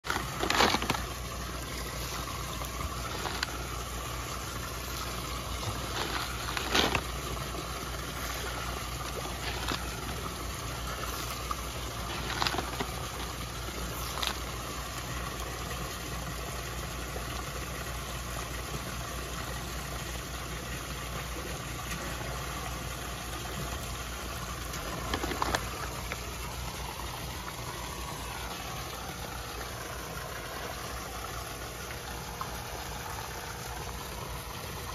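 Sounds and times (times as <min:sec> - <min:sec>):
fish splashing at surface: 0:00.0 - 0:15.3, 0:24.1 - 0:33.7
pump humming: 0:00.0 - 0:34.9
running water: 0:00.0 - 0:34.9.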